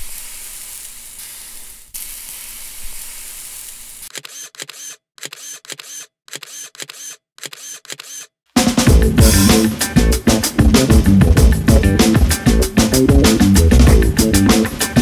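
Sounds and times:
sizzling hiss: 0:00.0 - 0:04.1
camera shutter clicks: 0:04.1 - 0:08.3.

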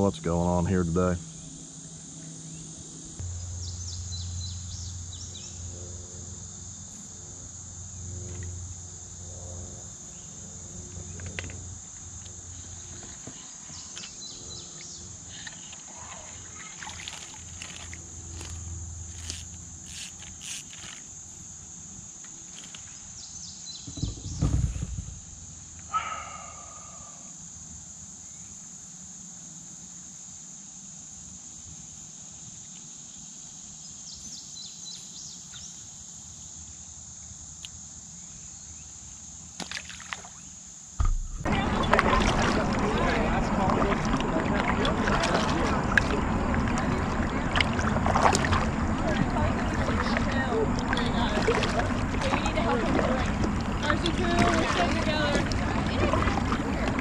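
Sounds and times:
insect chorus: 0:00.0 - 0:57.0
low thump: 0:23.8 - 0:25.3, 0:41.0 - 0:42.4.

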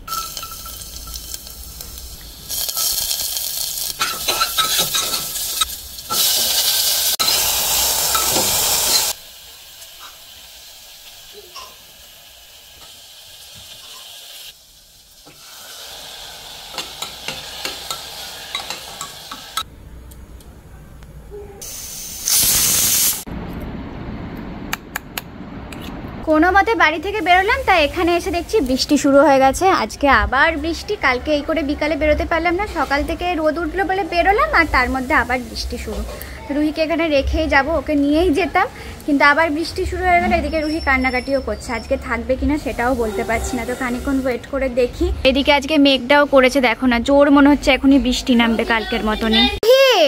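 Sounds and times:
food sizzling in hot oil: 0:00.0 - 0:19.7, 0:21.6 - 0:23.3, 0:26.6 - 0:29.6, 0:32.4 - 0:44.6
spoon stirring and scraping pot: 0:04.0 - 0:06.6.

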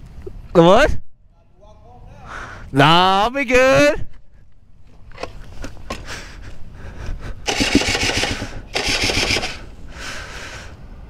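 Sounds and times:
engine cranking without starting: 0:07.4 - 0:09.7.

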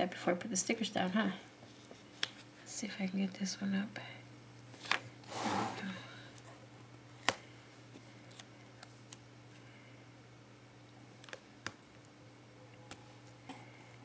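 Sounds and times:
low steady hum: 0:00.0 - 0:14.0.

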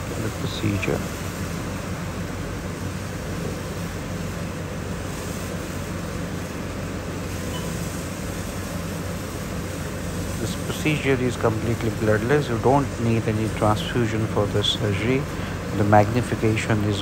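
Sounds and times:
even hiss: 0:00.0 - 0:17.0
low electrical hum: 0:00.0 - 0:17.0.

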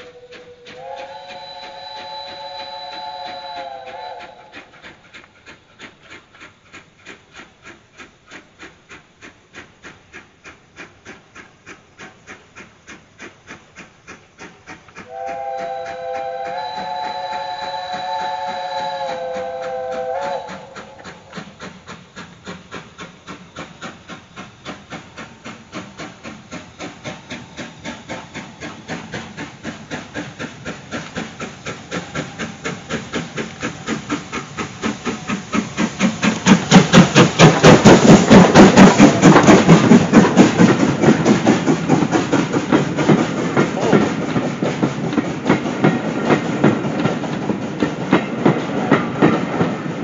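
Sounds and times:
steam locomotive whistle: 0:00.0 - 0:04.7, 0:15.0 - 0:21.3, 0:31.8 - 0:33.7
steam exhaust beating: 0:00.0 - 0:50.0.

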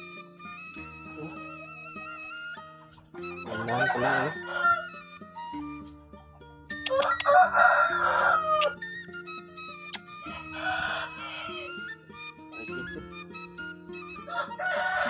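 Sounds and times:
music with low sustained notes: 0:00.0 - 0:15.0
rooster crowing: 0:03.5 - 0:05.2, 0:06.8 - 0:08.9, 0:10.2 - 0:12.0, 0:14.1 - 0:15.0.

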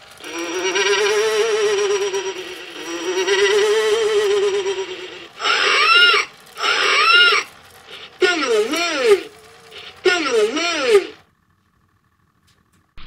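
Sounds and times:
spooky vocal calls: 0:00.0 - 0:11.2
warbling electronic tone: 0:00.2 - 0:11.2.

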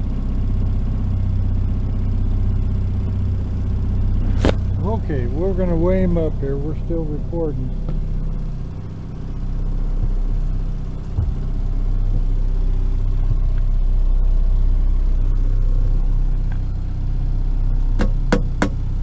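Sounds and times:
boat engine droning: 0:00.0 - 0:19.0
sharp knocks: 0:11.1 - 0:11.6, 0:18.0 - 0:18.8.

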